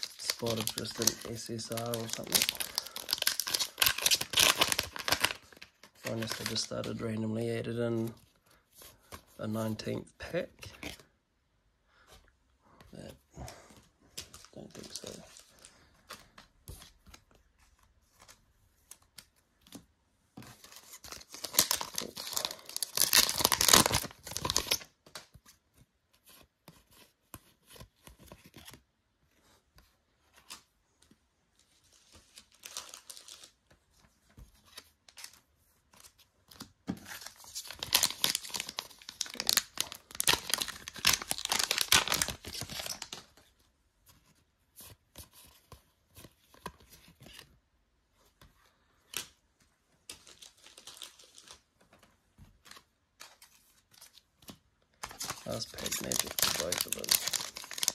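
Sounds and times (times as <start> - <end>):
foil packs tearing and crinkling: 0.0 - 6.8, 21.2 - 24.9, 37.1 - 43.2, 55.0 - 57.9
cards clicking and rustling: 0.0 - 7.1, 31.9 - 43.4, 50.0 - 57.9.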